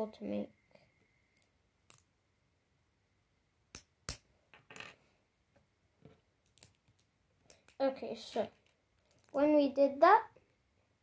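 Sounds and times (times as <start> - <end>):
plastic pieces tapping on table: 3.7 - 5.0, 6.0 - 7.8, 8.4 - 9.4
plastic bricks clicking together: 6.4 - 7.8, 8.5 - 9.4.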